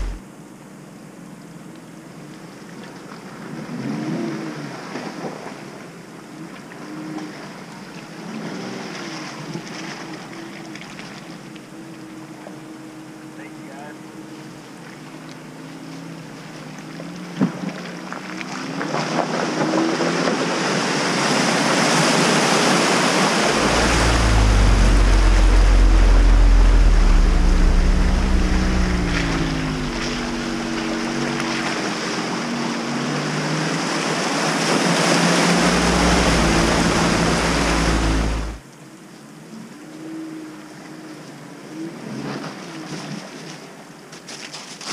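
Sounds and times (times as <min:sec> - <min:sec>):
deep rumble: 0:00.0 - 0:00.2, 0:23.4 - 0:33.0, 0:35.0 - 0:38.6
engine revving: 0:00.0 - 0:00.2, 0:23.2 - 0:38.6
water and mud splashing: 0:14.6 - 0:38.6.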